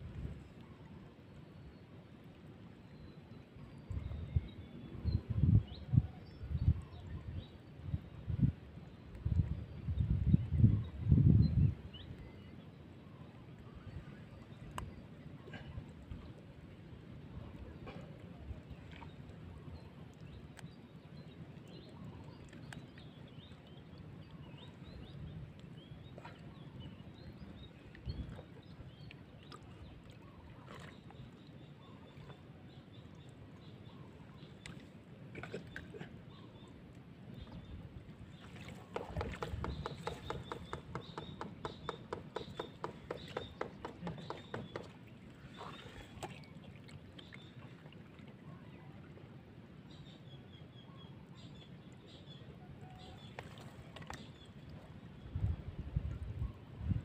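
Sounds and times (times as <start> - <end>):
water sloshing: 37.4 - 48.4.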